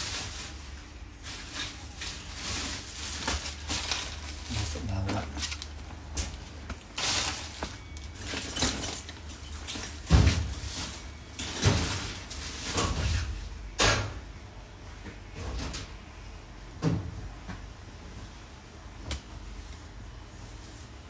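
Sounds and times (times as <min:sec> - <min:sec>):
knocks and clatter at metal locker: 0:08.2 - 0:14.2.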